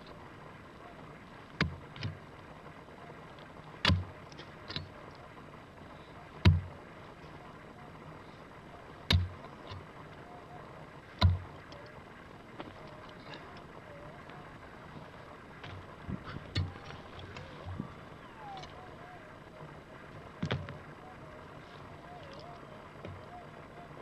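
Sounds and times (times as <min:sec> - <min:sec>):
dirt and stones rattling: 0:00.0 - 0:24.0.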